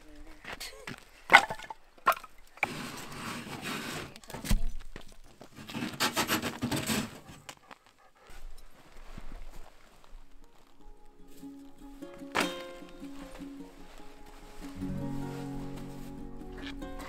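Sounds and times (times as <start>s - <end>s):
wood scraping and rubbing: 2.2s - 4.5s, 5.4s - 7.5s.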